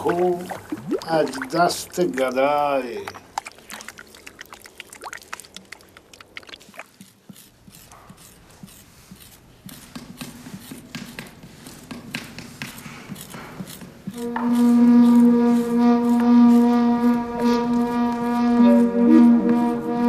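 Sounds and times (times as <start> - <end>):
wet clay squelching: 0.0 - 14.3.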